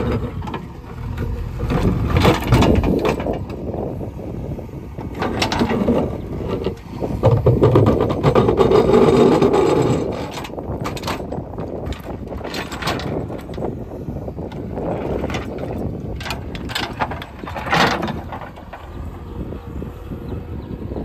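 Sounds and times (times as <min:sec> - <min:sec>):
diesel engine working under load: 0:00.0 - 0:21.0
bucket digging and scraping soil: 0:05.2 - 0:13.6.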